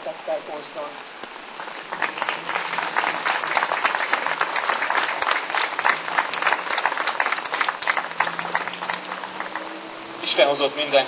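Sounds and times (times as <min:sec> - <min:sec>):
crowd applauding: 0:01.5 - 0:10.3.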